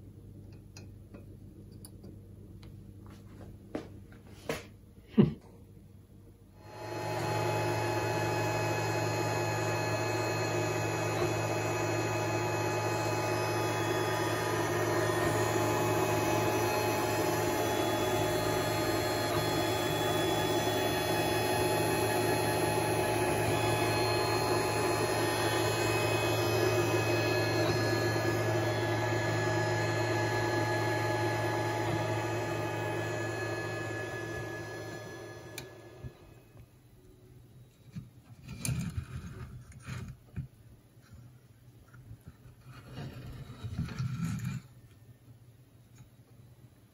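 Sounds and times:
printer fans and motors humming: 6.6 - 40.0
whine of held tones: 6.7 - 37.9.

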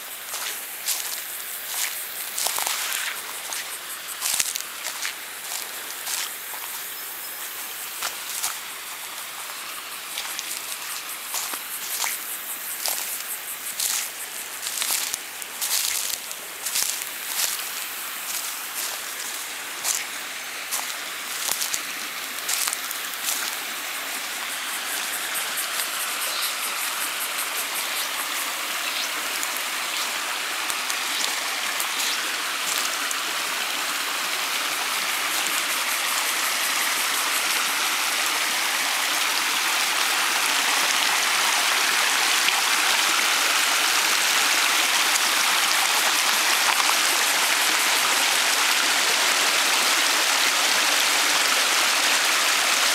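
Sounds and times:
creek rushing over rapids: 0.0 - 52.9
footsteps crunching on dry leaves: 0.2 - 24.4, 27.8 - 33.9.

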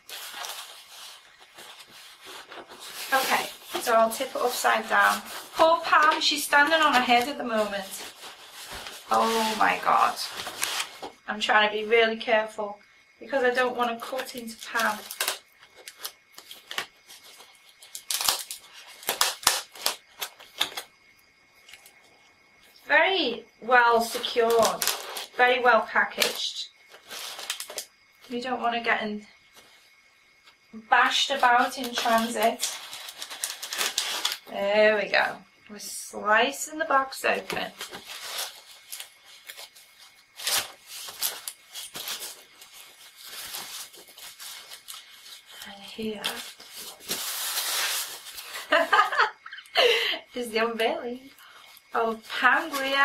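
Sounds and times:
foam lid scraping: 0.1 - 11.0
packing tape slicing and tearing: 14.6 - 20.9, 24.5 - 25.4, 27.0 - 27.9, 31.8 - 34.5, 37.8 - 45.5, 46.2 - 48.5.

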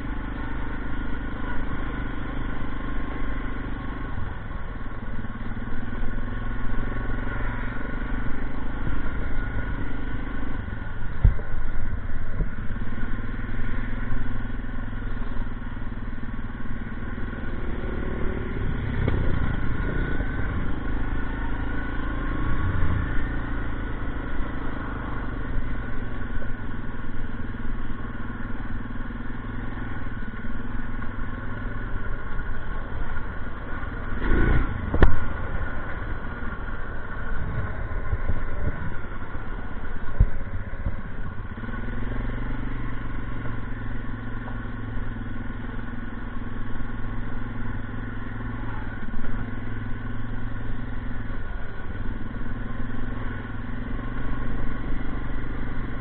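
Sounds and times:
atv engine running: 0.0 - 56.0.

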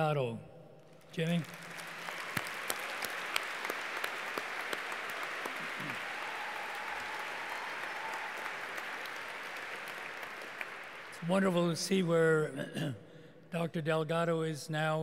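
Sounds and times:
audience applauding: 1.2 - 12.0.

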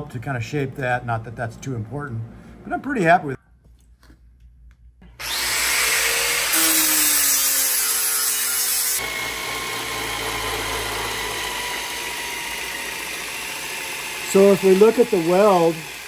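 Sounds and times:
belt grinder grinding metal: 5.2 - 16.0.

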